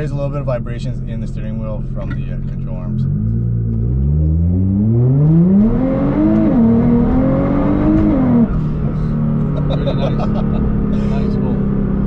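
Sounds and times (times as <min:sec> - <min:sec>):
car engine revving under full throttle: 0:02.4 - 0:12.0.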